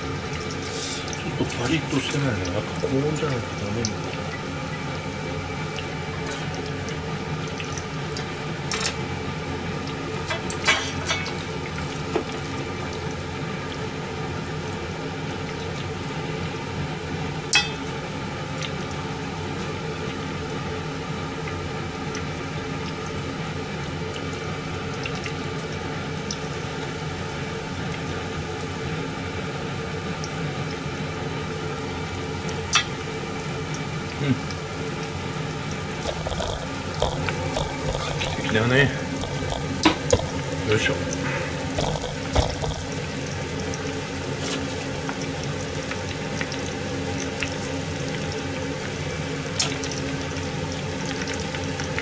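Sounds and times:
batter frying in hot oil: 0.0 - 52.0
chopsticks and ladle clinking: 17.5 - 17.9.

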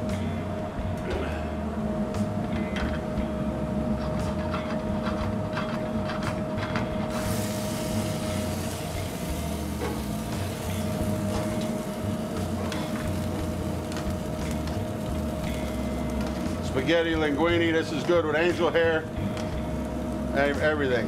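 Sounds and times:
kitchen fans humming: 0.0 - 21.0
mid-pitched whine: 0.0 - 21.0
steady hiss: 7.1 - 21.0.

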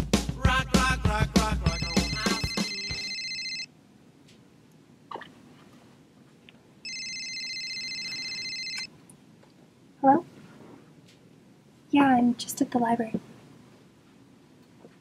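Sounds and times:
music: 0.0 - 3.1
phone ringtone ringing: 1.7 - 3.7, 6.8 - 8.9.

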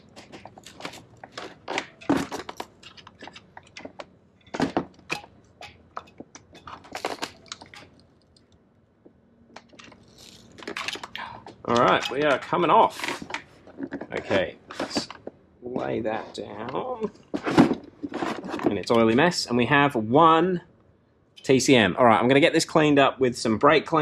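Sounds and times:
plastic and metal parts rattling: 0.0 - 8.4, 9.5 - 15.3, 17.2 - 19.2.

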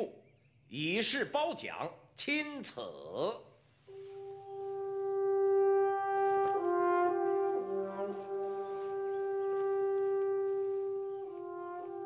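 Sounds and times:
held brass notes: 3.9 - 12.0.

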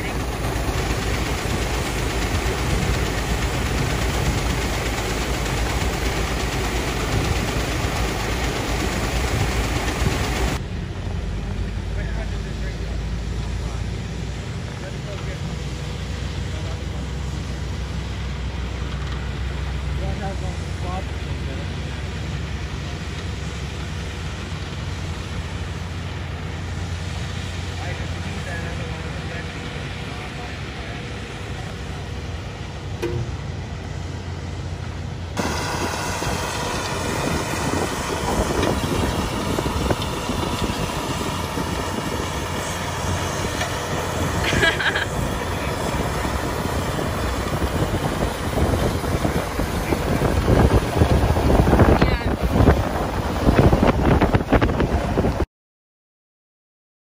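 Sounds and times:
grain auger running: 0.0 - 10.6, 35.3 - 55.2
swather engine rumble: 0.0 - 55.4.

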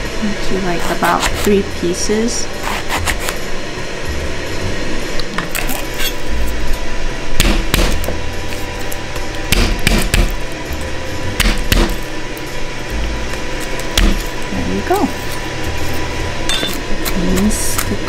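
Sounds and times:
knife chopping on cutting board: 7.4 - 8.2, 9.5 - 10.4, 11.4 - 12.0.

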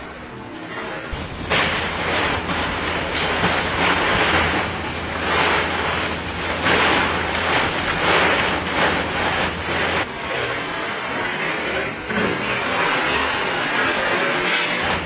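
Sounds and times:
ice cubes clattering and crunching: 1.1 - 10.1.

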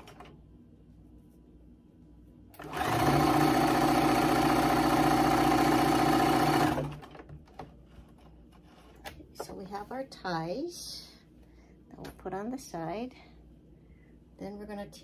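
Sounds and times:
electric sewing machine stitching: 2.6 - 7.2.

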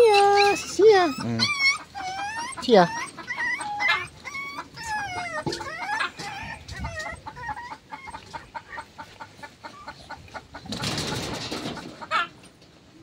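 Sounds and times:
high-pitched animal calls: 0.0 - 8.9.

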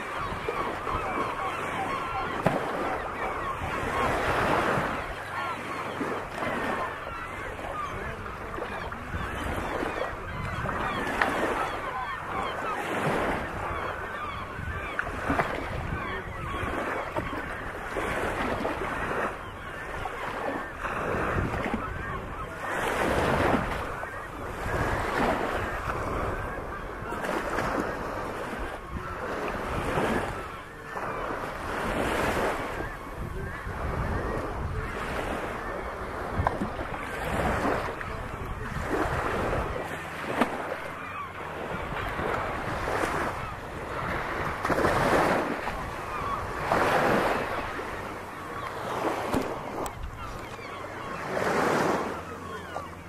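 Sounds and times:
small waves lapping on shore: 0.0 - 53.0
waterbirds calling: 0.0 - 53.0
wind on microphone: 20.8 - 22.4, 31.5 - 40.0.

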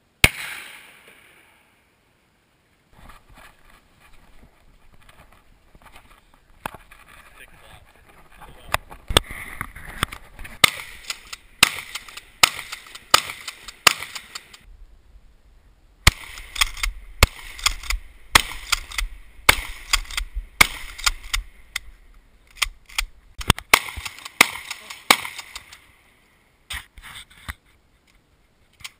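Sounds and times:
shotgun shots: 0.2 - 1.4, 10.6 - 14.6, 16.0 - 21.5, 22.6 - 25.8.

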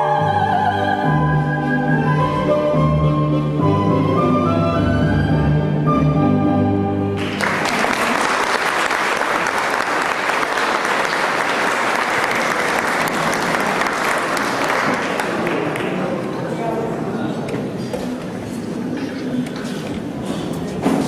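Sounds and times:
audience applause: 7.2 - 16.4.

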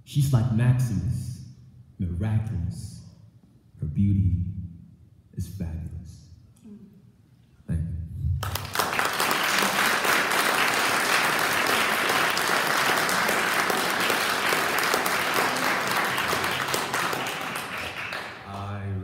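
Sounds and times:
audience applauding: 8.4 - 18.9.

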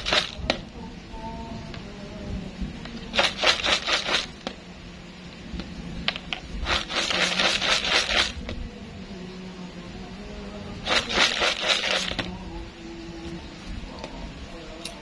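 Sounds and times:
chips rattling in shaken plastic jar: 0.0 - 0.4, 3.1 - 4.3, 6.6 - 8.4, 10.9 - 12.3.

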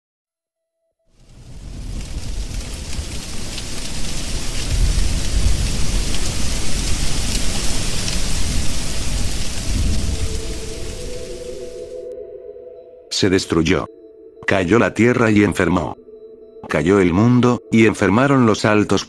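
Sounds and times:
heavy rain: 1.2 - 12.2
thunder rumbling: 1.2 - 12.2.

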